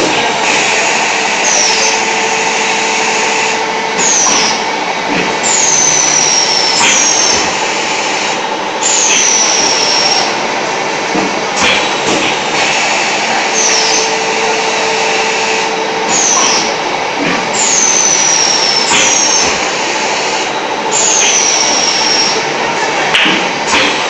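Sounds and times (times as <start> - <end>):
machine running: 0.0 - 24.0.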